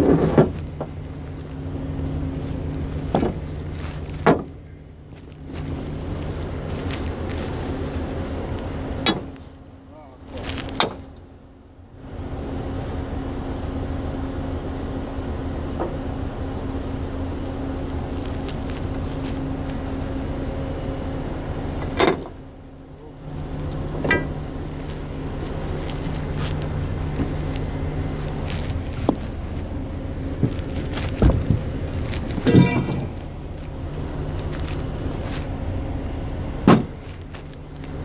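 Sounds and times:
engine humming: 0:00.0 - 0:38.0
sharp metal knocks: 0:09.0 - 0:09.4, 0:32.4 - 0:33.3.

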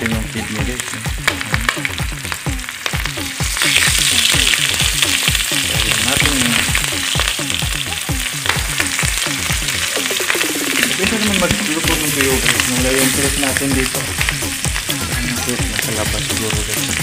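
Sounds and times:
fish sizzling in hot oil: 0:00.0 - 0:17.0
low rhythmic pulsing: 0:00.0 - 0:17.0.

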